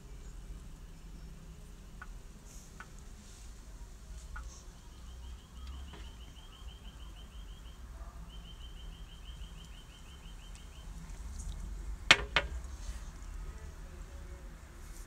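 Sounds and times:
small bird chirping: 4.4s - 11.5s
sharp knocks: 12.1s - 12.6s.

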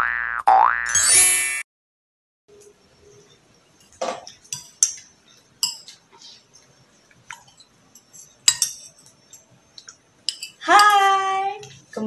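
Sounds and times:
spoon clinking against ceramic bowl: 7.4s - 11.0s.

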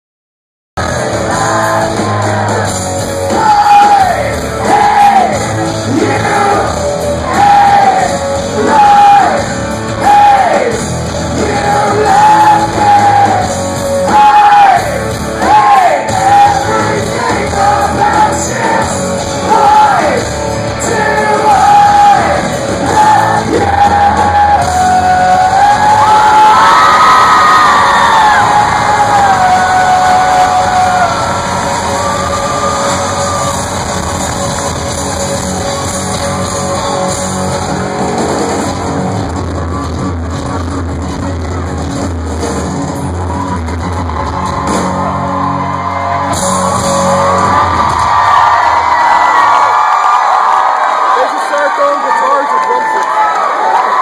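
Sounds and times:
lead singer singing: 0.8s - 37.1s
live rock band playing: 0.8s - 51.0s.

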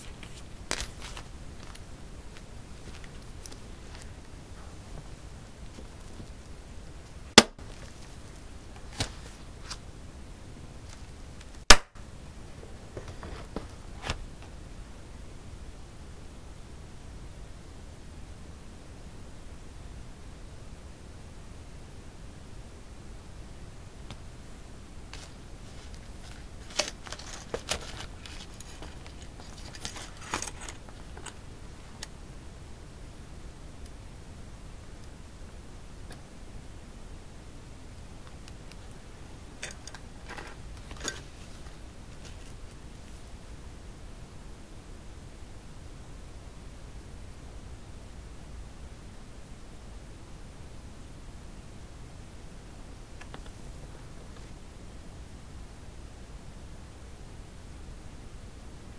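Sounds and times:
pages slapping down: 0.0s - 1.8s, 8.8s - 9.8s, 25.2s - 31.4s
paper rustling and binder taps: 0.1s - 1.8s, 25.2s - 31.4s.

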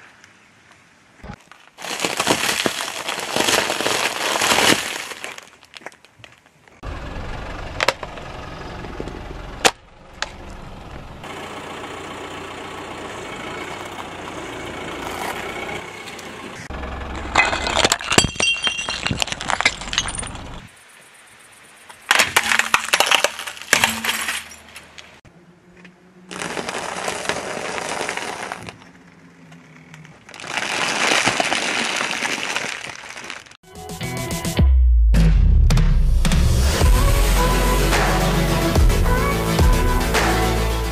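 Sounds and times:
car tyre crushing objects: 1.4s - 6.5s, 14.8s - 20.7s, 22.0s - 25.2s, 26.3s - 33.6s
foil bag crackling: 1.6s - 6.4s, 26.3s - 28.8s, 30.2s - 33.6s
glass breaking clinks: 17.4s - 20.5s, 22.2s - 24.8s.

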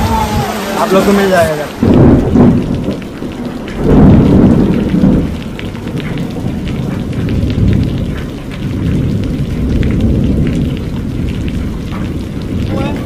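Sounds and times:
heavy rain pouring: 0.0s - 13.0s
loud low rumble: 1.7s - 3.0s.

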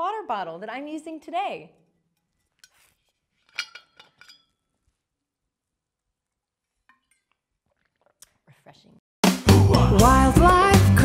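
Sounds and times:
metal bottle cap clinking: 3.4s - 4.6s.

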